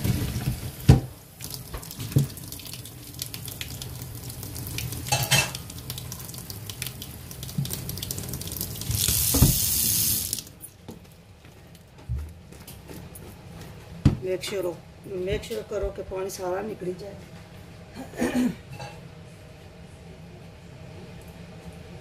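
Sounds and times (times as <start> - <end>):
water draining into a sink: 0.0 - 10.5.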